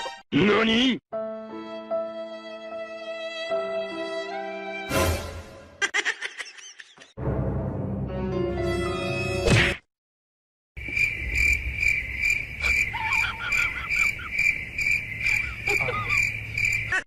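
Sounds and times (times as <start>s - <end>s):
cricket chirping: 10.8s - 17.0s.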